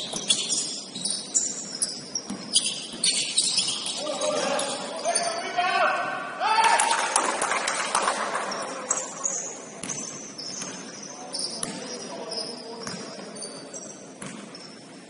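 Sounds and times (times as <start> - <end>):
sneakers squeaking: 0.0 - 6.2, 8.3 - 15.0
basketball bouncing: 1.8 - 4.0, 9.8 - 10.9, 11.6 - 11.9, 14.2 - 14.6.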